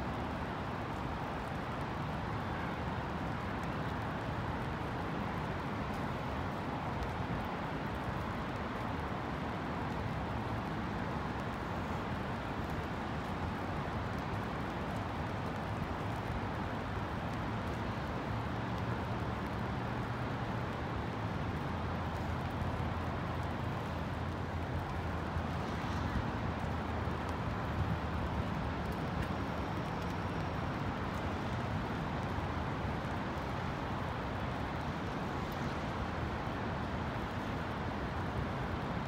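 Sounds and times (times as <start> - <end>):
rain hiss: 0.0 - 39.0.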